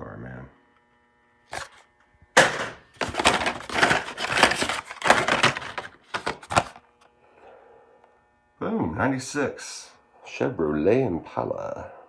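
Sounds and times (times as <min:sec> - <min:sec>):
cardboard packs rustling and crackling: 0:03.0 - 0:06.8.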